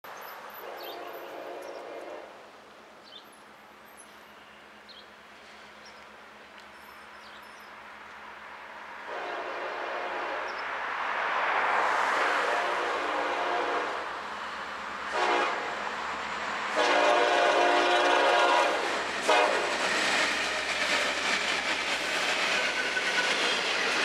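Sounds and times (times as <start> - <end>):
approaching train noise: 0.0 - 24.0
locomotive horn blast: 9.1 - 10.5, 12.2 - 14.1, 15.1 - 15.8, 16.7 - 19.8.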